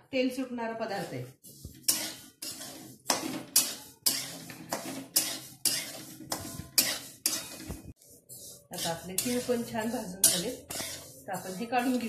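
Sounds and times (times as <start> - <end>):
spatula scraping seeds in pan: 0.6 - 12.0.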